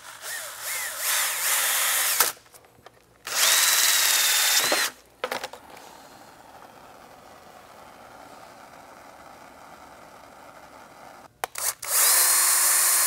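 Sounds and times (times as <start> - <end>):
cordless drill with hole saw whining: 0.0 - 2.4, 3.3 - 5.0, 10.2 - 13.0.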